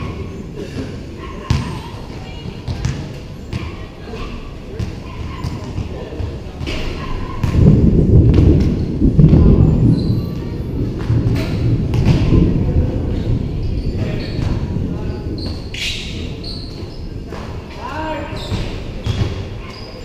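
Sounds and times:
basketball bouncing on concrete: 1.5s - 1.7s, 18.5s - 19.4s
heavy low rumble: 7.4s - 17.8s.

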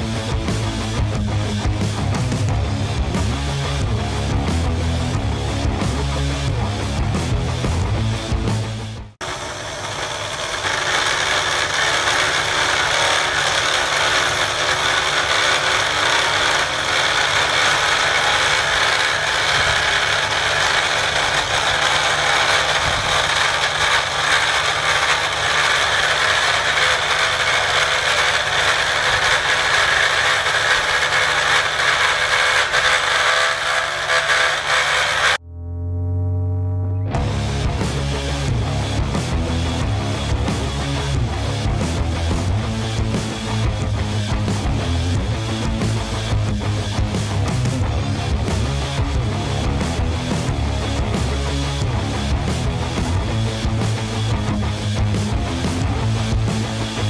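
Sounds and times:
mill grinding metal: 9.2s - 35.4s.

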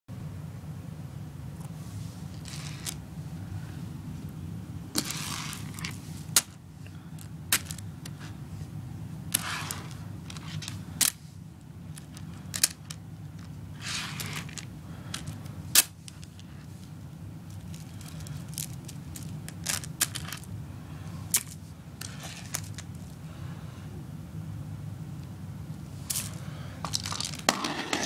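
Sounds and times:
steady low hum: 0.1s - 28.0s
beads rustling: 1.9s - 3.0s, 4.9s - 23.2s, 25.9s - 28.0s
plastic beads clicking: 5.0s - 8.2s, 11.9s - 16.5s, 17.5s - 20.5s.

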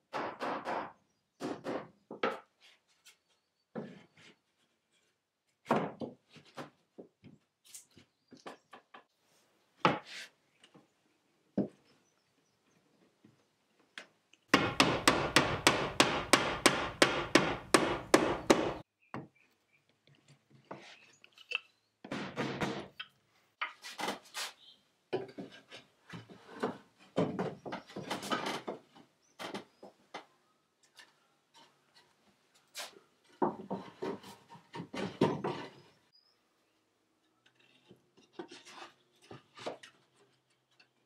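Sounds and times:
hammer tapping wooden wedge: 14.5s - 18.8s
wooden boards knocking and scraping: 14.6s - 18.8s, 25.1s - 30.3s, 33.2s - 35.9s.

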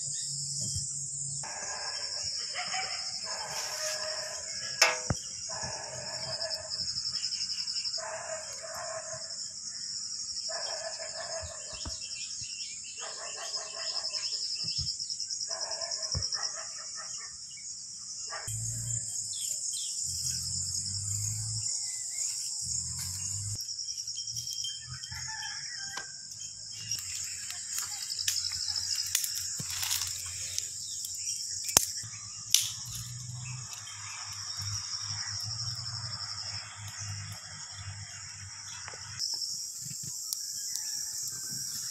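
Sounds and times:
high drone of insects: 0.0s - 41.9s
rooster crowing: 24.8s - 26.3s, 40.6s - 41.9s.

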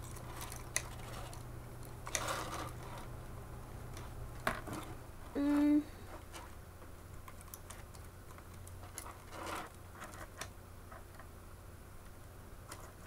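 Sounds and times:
scratchy rustle: 0.1s - 1.4s, 2.1s - 3.1s, 8.8s - 11.0s.

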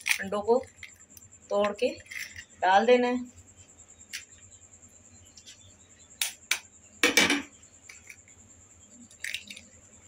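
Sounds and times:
eggshell crunching: 9.0s - 9.8s.

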